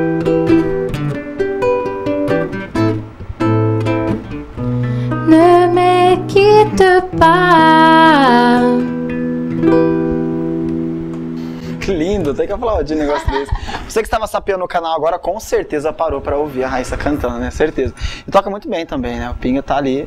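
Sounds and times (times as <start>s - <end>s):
acoustic guitar picking: 0.0s - 12.4s
woman singing: 5.1s - 9.0s.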